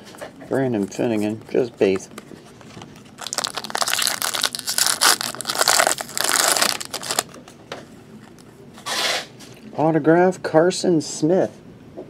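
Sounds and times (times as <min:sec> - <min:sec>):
foil wrapper tearing and crinkling: 0:02.9 - 0:07.4.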